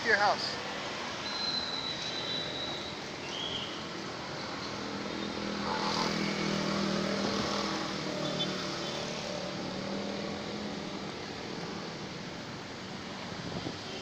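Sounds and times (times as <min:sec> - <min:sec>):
traffic noise: 0:00.0 - 0:14.0
engine hum: 0:04.5 - 0:12.7.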